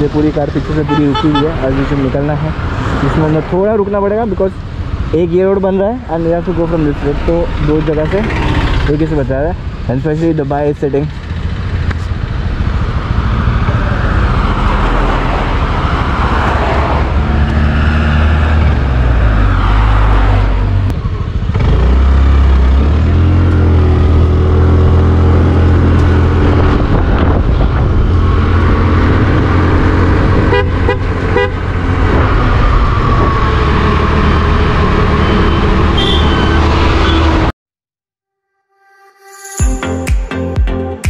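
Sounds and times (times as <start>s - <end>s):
motorcycle engine running: 11.1s - 14.2s
quick horn beeps: 35.2s - 37.3s.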